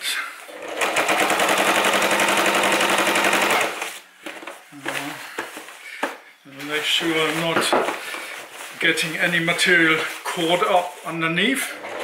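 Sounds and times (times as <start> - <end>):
sewing machine stitching: 0.5 - 4.0, 11.7 - 12.0.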